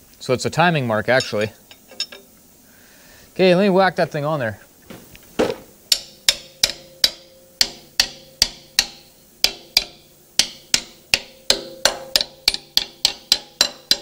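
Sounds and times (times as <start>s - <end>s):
hammer tapping on metal: 5.9s - 14.0s.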